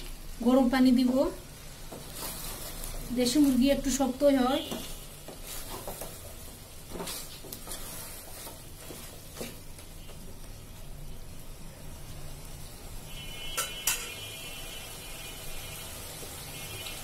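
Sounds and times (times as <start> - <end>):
meat sizzling in oil: 0.0 - 17.0
wooden spatula scraping metal pot: 1.9 - 9.6.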